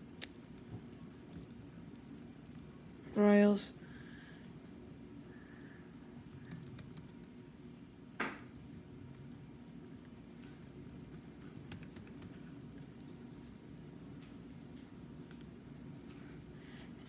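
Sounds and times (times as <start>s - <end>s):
typing on laptop keyboard: 0.2s - 2.8s, 6.2s - 7.3s, 10.8s - 12.4s.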